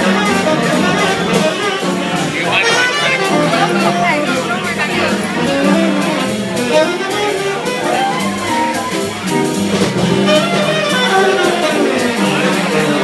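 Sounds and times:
double bass: 0:00.0 - 0:13.0
guitar: 0:00.0 - 0:13.0
saxophone melody: 0:00.0 - 0:13.0.

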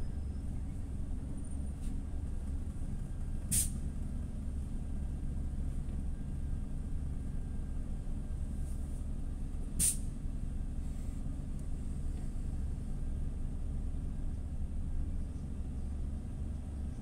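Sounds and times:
bus engine idling: 0:00.0 - 0:17.0
pneumatic air hiss: 0:03.5 - 0:03.8, 0:09.8 - 0:10.1.

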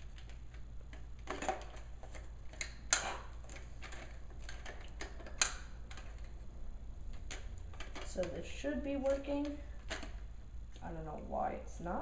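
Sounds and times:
plastic toy clicks and rattles: 0:00.0 - 0:06.4, 0:07.1 - 0:08.4.

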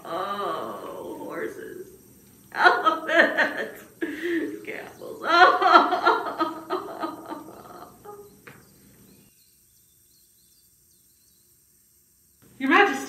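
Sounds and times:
person exclaiming and muttering: 0:00.0 - 0:01.8
faint high chirps: 0:00.0 - 0:13.0.

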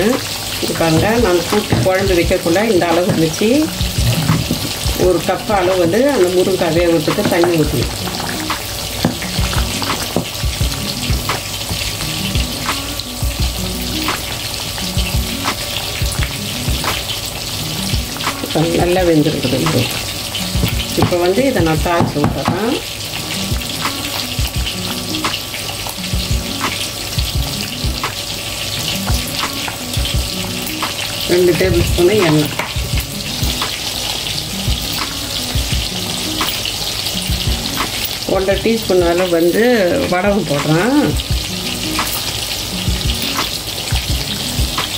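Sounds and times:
bubbles popping: 0:00.0 - 0:11.4
curry simmering with sizzling hiss: 0:00.0 - 0:44.9.

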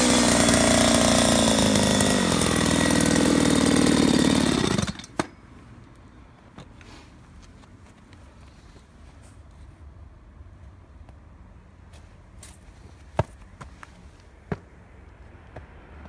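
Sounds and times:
chainsaw engine: 0:00.0 - 0:05.3.

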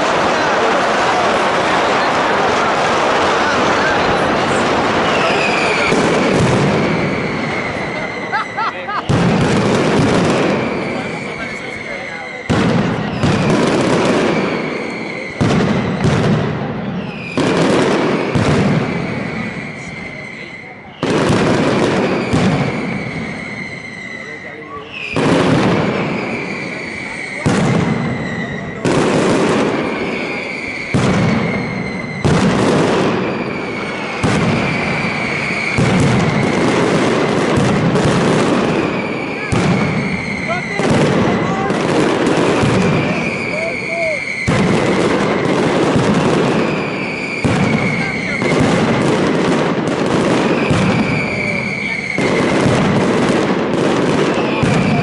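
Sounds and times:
firecracker barrage bangs: 0:00.0 - 0:55.0
steady high whistle: 0:05.0 - 0:06.0, 0:06.8 - 0:08.9, 0:10.5 - 0:13.6, 0:14.3 - 0:16.1, 0:18.2 - 0:21.1, 0:22.1 - 0:25.2, 0:26.0 - 0:28.8, 0:29.8 - 0:32.3, 0:33.2 - 0:36.6, 0:38.7 - 0:41.6, 0:43.0 - 0:45.5, 0:46.6 - 0:48.6, 0:50.5 - 0:52.3.

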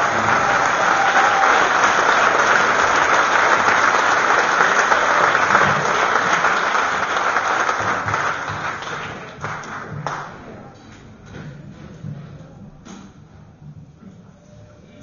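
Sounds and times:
audience applauding: 0:00.0 - 0:10.5.

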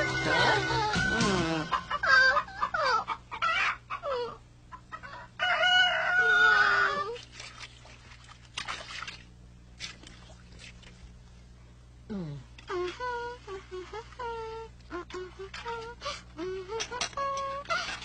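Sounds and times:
rooster clucking: 0:00.0 - 0:07.1
rooster crowing: 0:05.1 - 0:07.2.

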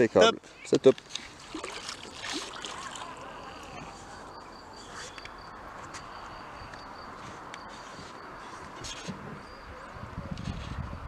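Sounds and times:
high insect trill: 0:01.5 - 0:08.8.

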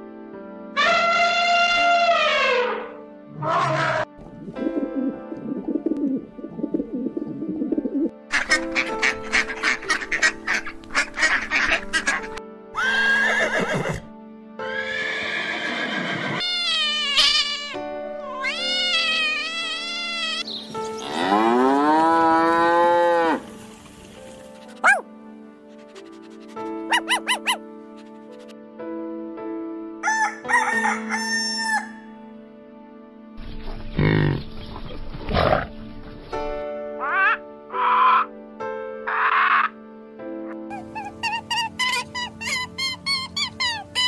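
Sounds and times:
background music: 0:00.0 - 0:44.0
horse whinnying: 0:12.8 - 0:14.1, 0:14.7 - 0:17.5
cat meowing: 0:16.4 - 0:20.5
rooster crowing: 0:30.0 - 0:32.1.

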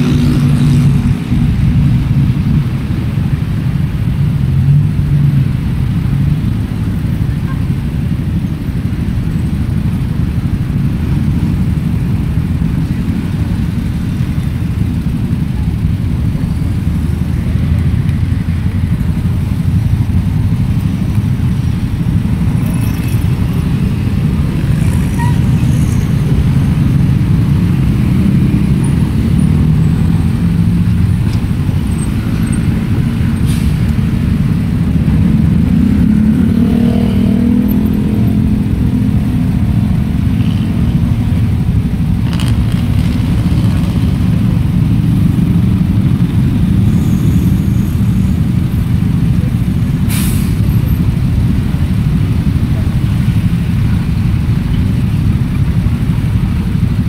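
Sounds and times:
motorcycles idling in traffic: 0:00.0 - 0:57.0
engine revving: 0:34.5 - 0:41.1.

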